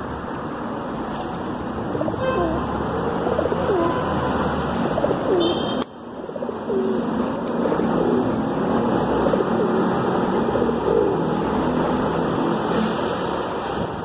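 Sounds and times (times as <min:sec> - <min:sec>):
pigeons cooing: 0:01.8 - 0:12.0.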